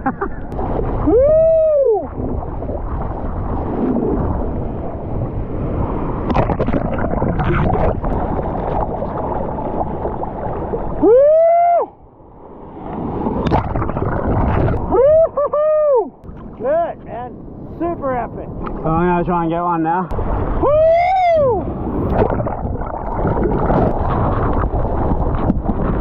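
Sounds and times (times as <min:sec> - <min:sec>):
surf water rushing and splashing: 0:00.0 - 0:26.0
person shouting woo: 0:01.0 - 0:02.1, 0:11.0 - 0:12.0, 0:14.9 - 0:16.1, 0:20.6 - 0:21.7.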